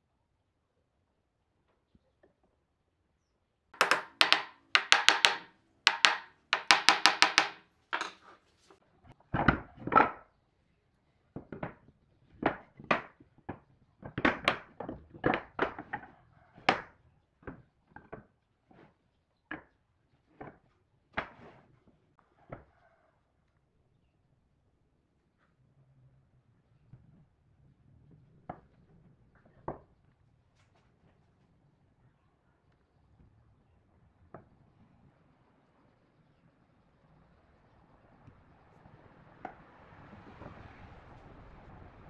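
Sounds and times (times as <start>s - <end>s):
boards knocking on wooden workbench: 3.8s - 8.3s.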